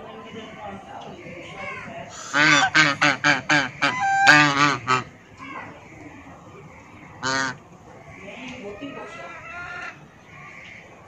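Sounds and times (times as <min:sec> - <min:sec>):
geese honking: 0:02.1 - 0:05.2, 0:07.2 - 0:10.9.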